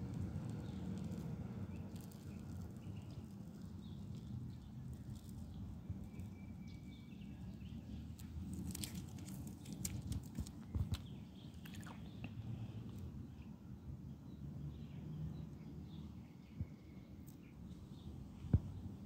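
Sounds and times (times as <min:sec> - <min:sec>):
steady low rumble: 0:00.0 - 0:09.8
tape peeling crackle: 0:00.0 - 0:11.0.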